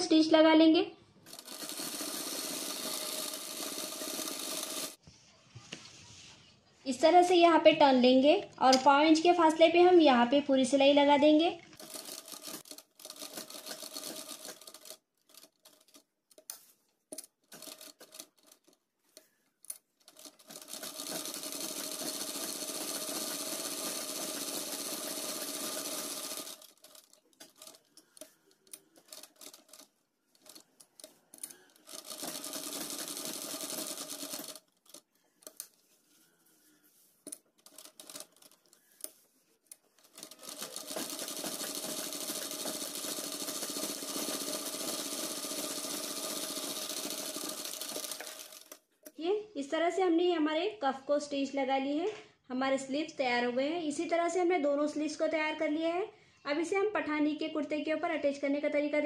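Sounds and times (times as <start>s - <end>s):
sewing machine stitching: 1.2s - 5.0s, 11.8s - 16.5s, 17.2s - 18.8s, 20.0s - 35.7s, 37.3s - 39.2s, 39.9s - 48.8s.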